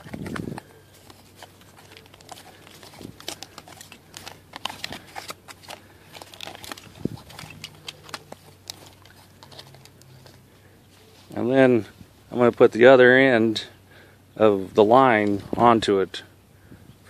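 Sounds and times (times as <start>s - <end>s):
light clicks and crinkles: 0.0s - 11.4s.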